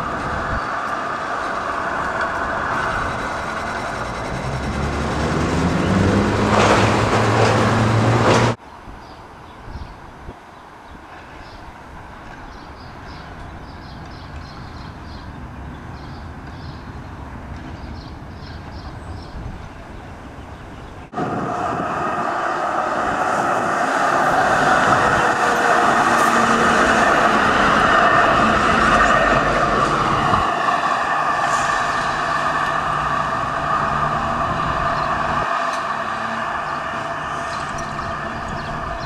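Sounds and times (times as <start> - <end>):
tram running on rails: 0.0 - 8.6, 12.0 - 39.0.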